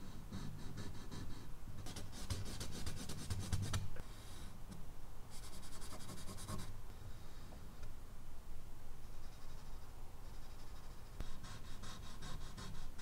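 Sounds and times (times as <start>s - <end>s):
charcoal scratching on paper: 5.4s - 6.7s, 9.1s - 13.0s.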